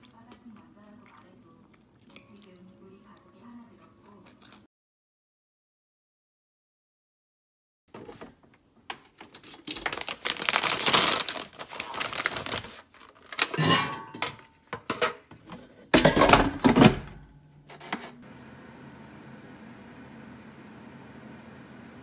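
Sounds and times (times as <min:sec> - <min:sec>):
plastic bag crinkling: 0:09.2 - 0:13.6
kitchen appliance humming: 0:17.7 - 0:22.0.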